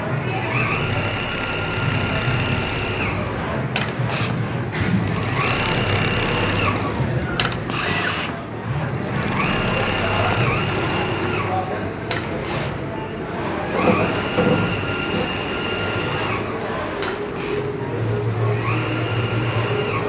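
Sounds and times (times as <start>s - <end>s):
sewing machine stitching: 0.3s - 4.3s, 5.1s - 8.4s, 9.1s - 11.6s, 13.7s - 16.6s, 18.4s - 20.0s.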